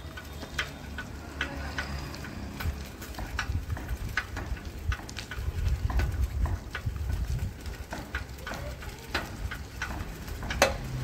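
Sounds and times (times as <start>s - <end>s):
footsteps on pavement: 0.0s - 11.0s
wind rumble on microphone: 2.4s - 11.0s.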